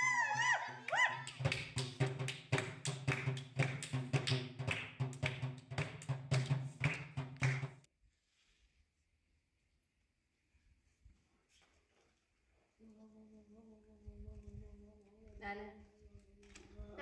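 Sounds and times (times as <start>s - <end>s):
hands clapping in rhythm: 0.0s - 7.9s.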